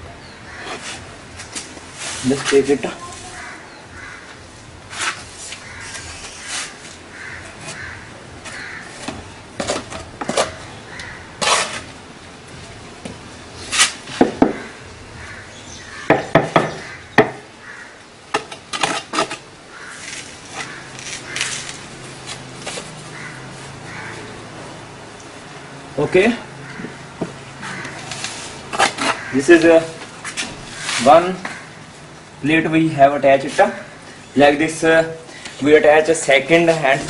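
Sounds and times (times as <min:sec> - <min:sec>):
trowel scraping mortar: 0:11.4 - 0:11.9, 0:27.7 - 0:31.2.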